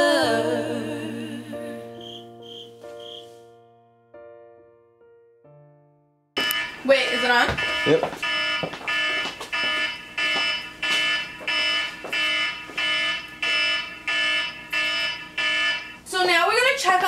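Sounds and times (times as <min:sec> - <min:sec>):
kitchen timer beeping: 0:06.4 - 0:09.2.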